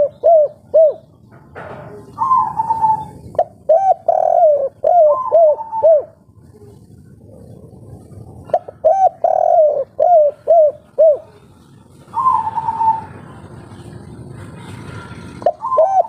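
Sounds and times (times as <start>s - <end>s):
dove cooing: 0.0s - 13.8s, 15.2s - 16.0s.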